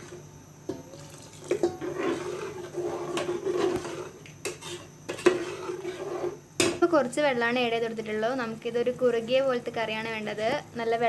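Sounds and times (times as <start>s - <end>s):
water pouring into pot: 0.9s - 2.4s
ladle knocking metal pot: 1.5s - 1.9s.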